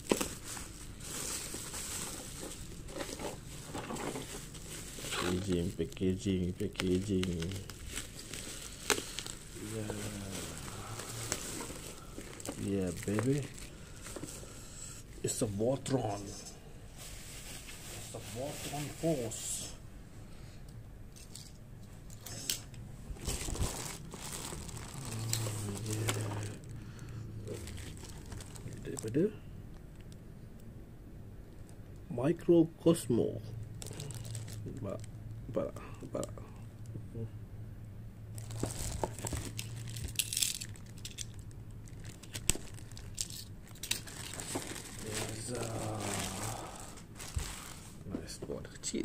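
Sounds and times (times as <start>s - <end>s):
plastic bag crinkling: 0.0s - 14.6s, 23.2s - 30.2s, 33.8s - 35.1s, 38.3s - 48.1s
low steady hum: 0.0s - 49.0s.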